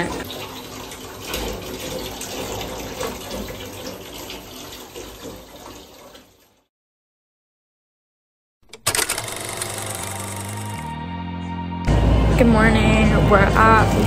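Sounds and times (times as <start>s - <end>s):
water pouring into bathtub: 0.0s - 6.7s.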